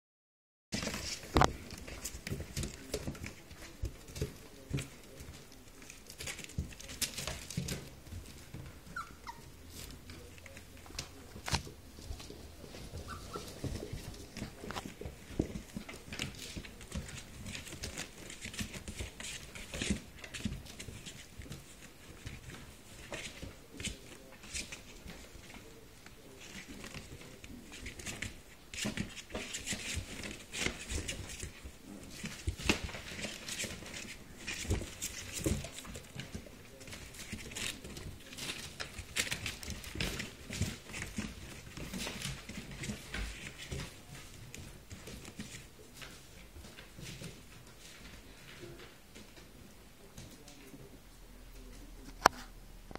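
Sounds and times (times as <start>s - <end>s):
puppies scrabbling against box: 0.8s - 49.5s
claw scratches and small thumps: 0.8s - 50.8s
puppy whimpers: 8.9s - 9.6s, 13.0s - 13.6s.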